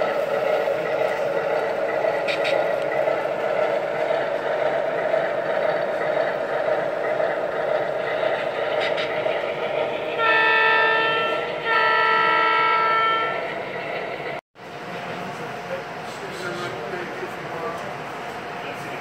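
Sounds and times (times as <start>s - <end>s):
train rumbling: 0.0s - 19.0s
train horn blasts: 10.2s - 13.4s.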